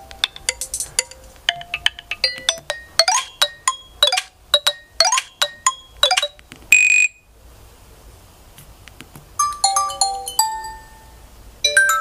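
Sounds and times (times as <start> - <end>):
chiming ringtone tune: 0.0 - 6.4, 9.4 - 12.0
plinking ringtone melody: 0.0 - 6.4, 9.4 - 12.0.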